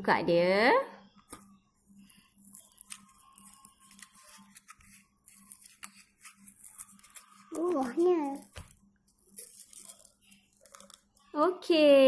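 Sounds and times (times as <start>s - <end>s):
plastic seal peeled and torn: 2.1s - 11.3s.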